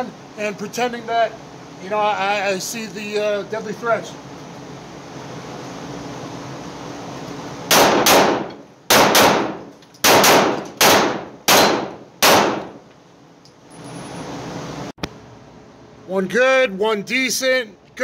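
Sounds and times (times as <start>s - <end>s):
ventilation hum: 0.0s - 18.0s
pistol shots echoing indoors: 7.7s - 12.8s.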